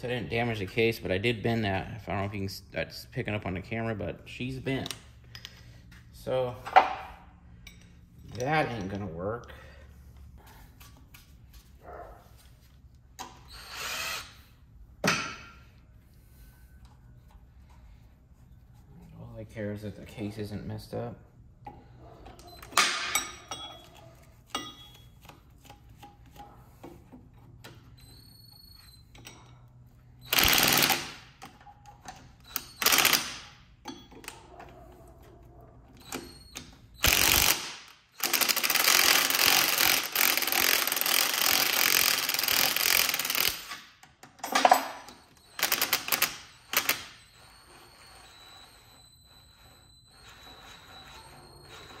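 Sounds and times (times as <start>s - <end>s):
impact wrench hammering: 15.0s - 15.6s, 30.3s - 31.3s.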